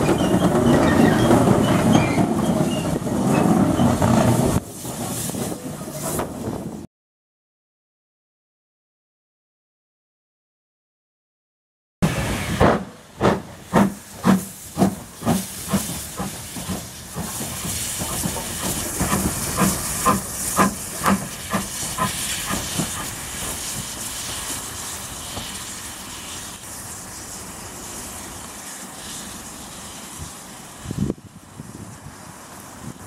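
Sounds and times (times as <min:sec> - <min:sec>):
steam hissing: 0:00.0 - 0:06.8, 0:12.0 - 0:33.0
steam locomotive chuffing: 0:00.0 - 0:06.8, 0:12.0 - 0:31.0.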